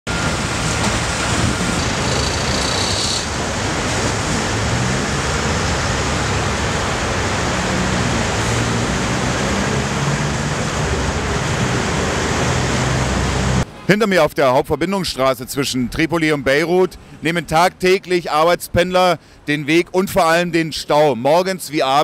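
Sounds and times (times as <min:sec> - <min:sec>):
street traffic: 0:00.0 - 0:22.0
diesel engine running: 0:00.1 - 0:13.8.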